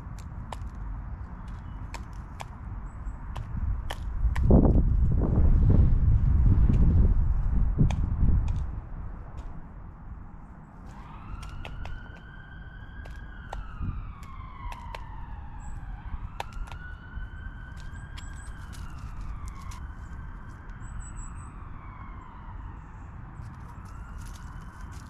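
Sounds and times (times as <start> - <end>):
emergency vehicle siren wailing: 10.8 - 25.0
faint high bird chirps: 20.7 - 21.6.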